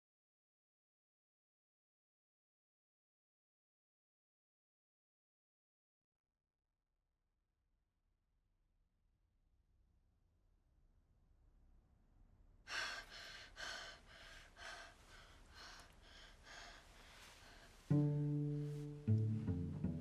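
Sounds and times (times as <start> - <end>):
short sharp breaths: 12.7 - 17.9
low bowed strings: 16.4 - 20.0.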